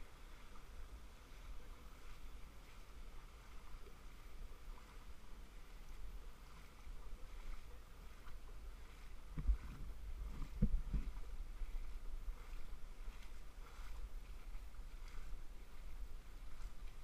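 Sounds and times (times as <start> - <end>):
faint water sounds: 0.0 - 17.0
wind rumbling on microphone: 0.0 - 17.0.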